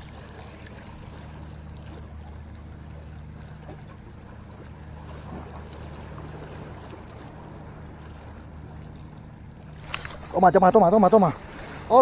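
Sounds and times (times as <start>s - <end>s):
sea water lapping against concrete: 0.0s - 12.0s.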